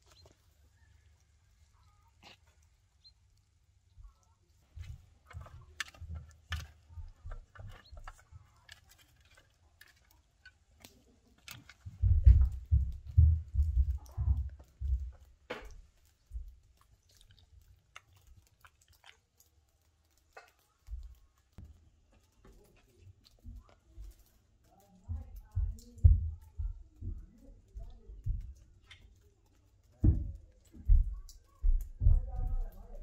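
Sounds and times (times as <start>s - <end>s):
dull low thumps: 11.9s - 15.3s, 25.1s - 28.6s, 30.0s - 33.0s
dog gnawing bone: 13.9s - 21.6s.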